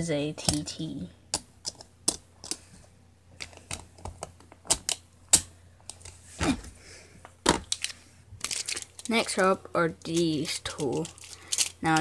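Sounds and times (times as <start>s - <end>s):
plastic spinning tops clicking: 10.0s - 12.0s.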